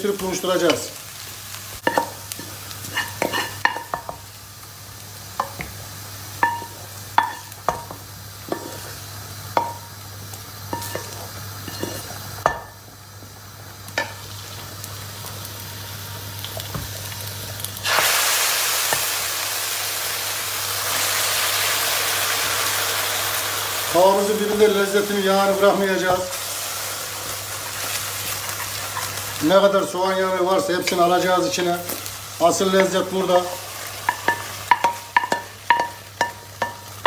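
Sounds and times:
soup sizzling in hot pan: 0.0s - 37.0s
wooden spoon knocking on frying pan: 34.1s - 36.8s.

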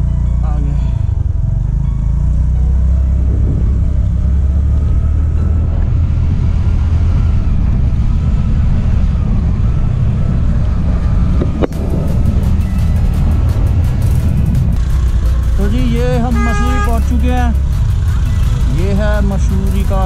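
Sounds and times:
wind on microphone: 3.2s - 4.1s
scooter engine running: 7.5s - 20.0s.

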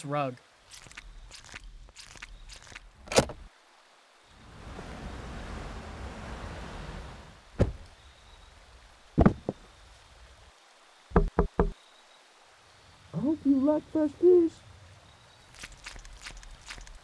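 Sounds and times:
quick knocks: 11.1s - 11.8s.

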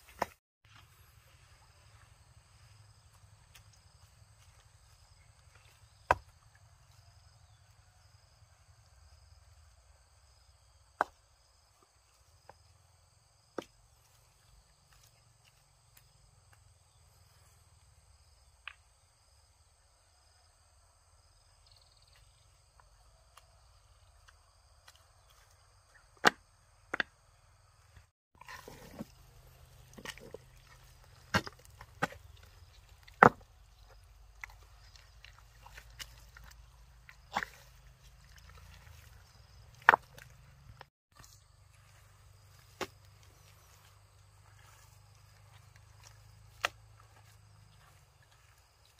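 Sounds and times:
stones clacking together: 28.4s - 41.3s.

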